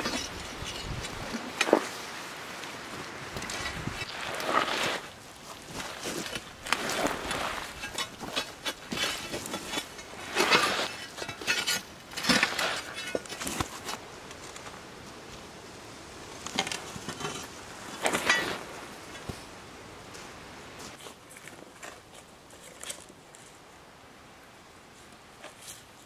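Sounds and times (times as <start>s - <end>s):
metal pry bar scraping rock: 0.0s - 2.0s, 3.4s - 14.0s, 16.6s - 19.3s.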